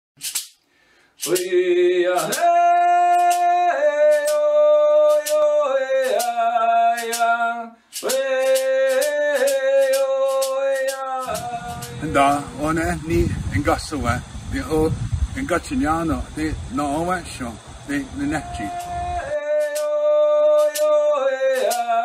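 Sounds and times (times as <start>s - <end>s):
person singing long notes: 1.2s - 13.5s, 17.9s - 22.0s
sharp percussion beat: 1.2s - 13.9s, 17.9s - 21.0s, 21.6s - 22.0s.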